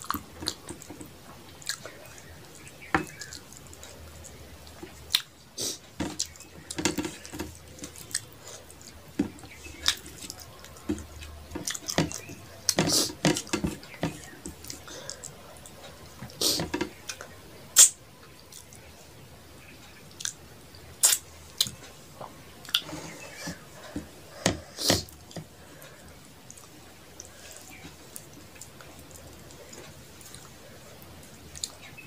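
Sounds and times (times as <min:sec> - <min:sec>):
fingers squishing rice on plate: 0:00.0 - 0:18.9.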